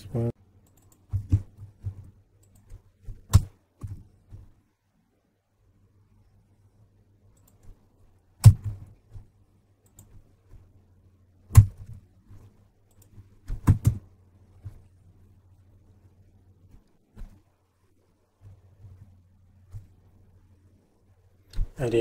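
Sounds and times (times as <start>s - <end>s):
faint low hum: 0.0s - 22.0s
computer key and mouse clicks: 0.6s - 4.0s, 7.3s - 7.8s, 9.8s - 10.2s, 11.5s - 12.0s, 12.8s - 14.0s.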